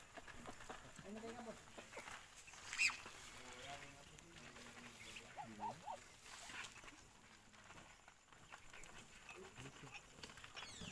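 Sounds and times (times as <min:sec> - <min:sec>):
ducklings pecking grain: 0:00.0 - 0:10.9
duckling calls: 0:05.2 - 0:06.5.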